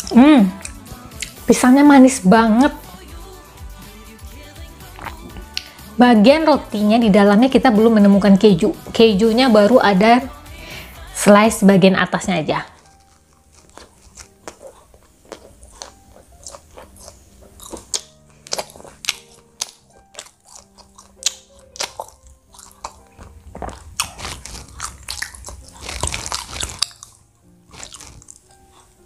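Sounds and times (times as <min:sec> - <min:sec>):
chewing mouth clicks and smacks: 0:00.0 - 0:01.4, 0:05.0 - 0:05.7, 0:12.8 - 0:29.0
soft background music: 0:00.0 - 0:29.0.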